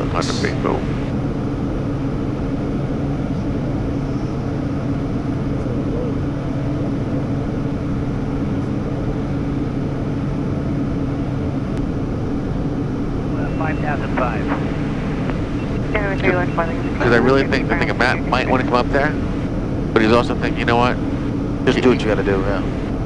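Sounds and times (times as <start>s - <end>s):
low constant hum: 0.0s - 23.0s.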